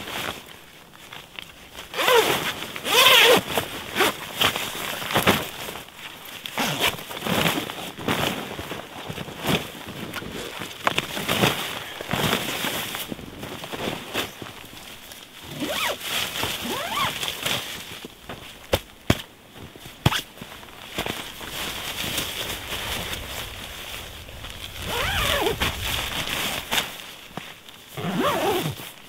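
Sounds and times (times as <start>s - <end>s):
nylon fabric rustling: 0.0s - 29.0s
zipper being run: 1.9s - 4.5s, 6.6s - 8.3s, 15.4s - 17.6s, 21.9s - 27.0s, 27.9s - 29.0s
snow crunching: 19.9s - 29.0s.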